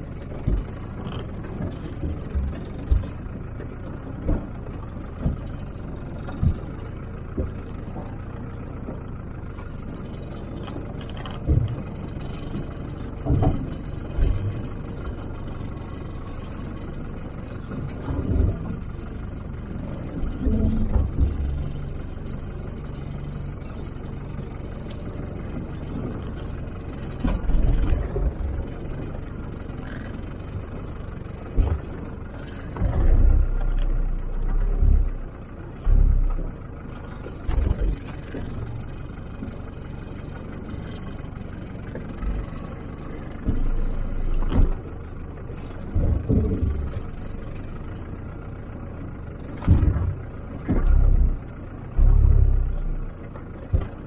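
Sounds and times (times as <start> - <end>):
engine low rumble: 0.0 - 54.0.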